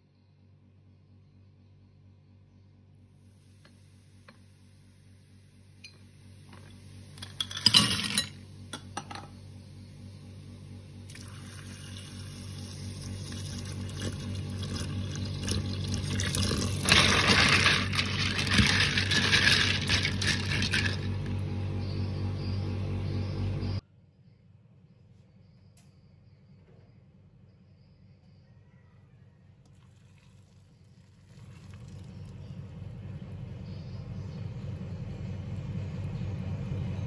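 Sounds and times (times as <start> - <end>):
shells clattering in plastic bowl: 7.2 - 8.4, 16.2 - 21.3
water running into bowl: 11.1 - 21.3, 29.7 - 32.3
shells swished in water: 16.8 - 21.1.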